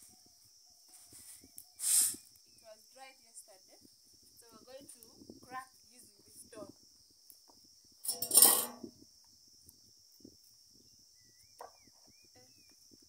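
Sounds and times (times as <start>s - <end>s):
faint bird chirps: 0.0s - 3.4s, 10.7s - 13.0s
insect chirring: 0.0s - 13.0s
grinding stone scraping clatter: 8.1s - 8.8s.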